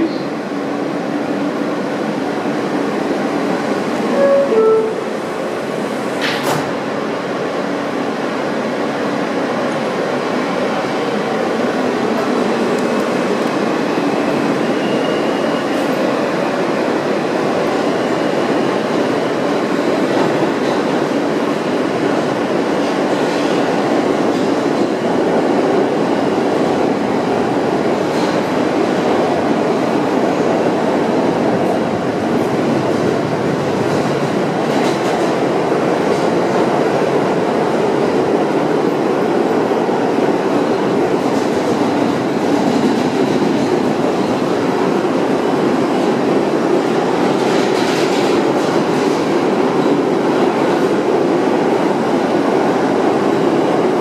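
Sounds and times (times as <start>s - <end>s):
subway car rumbling on rails: 0.0s - 54.0s.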